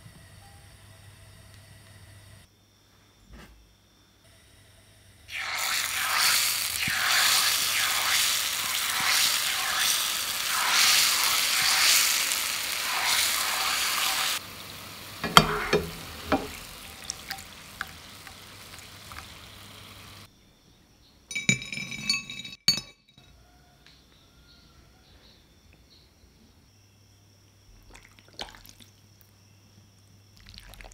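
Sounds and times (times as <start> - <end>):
batter sizzling in hot oil: 5.3 - 20.3
skimmer clinking against pan: 15.2 - 18.4.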